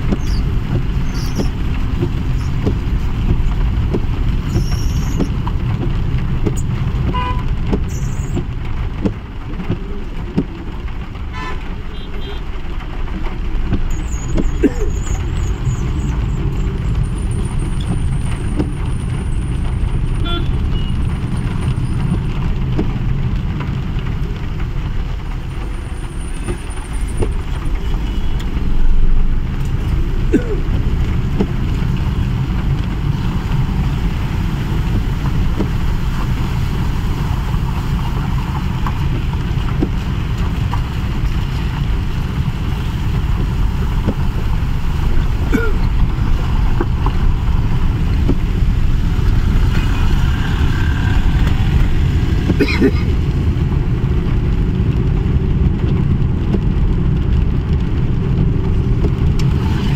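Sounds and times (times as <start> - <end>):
car engine and tyres on wet road: 0.0 - 59.9.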